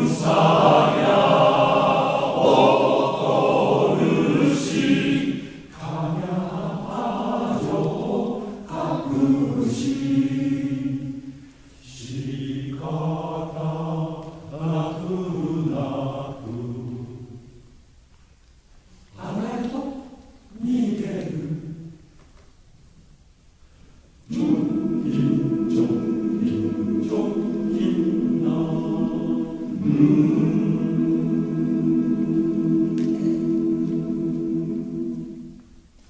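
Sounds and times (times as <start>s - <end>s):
men's choir singing: 0.0s - 17.4s, 24.3s - 35.7s.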